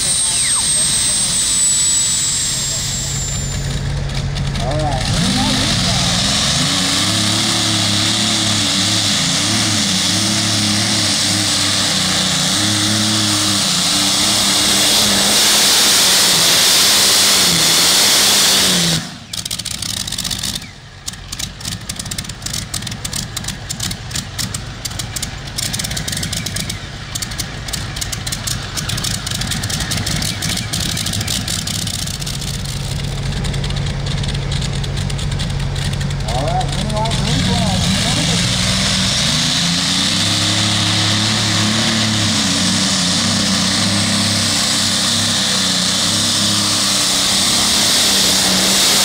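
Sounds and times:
tractor engine running under load: 0.0 - 49.0.

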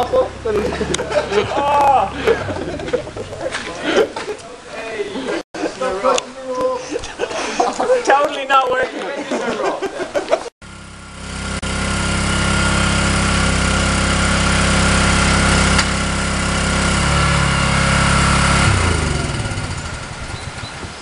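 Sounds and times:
small engine running: 0.0 - 3.0, 10.6 - 21.0.

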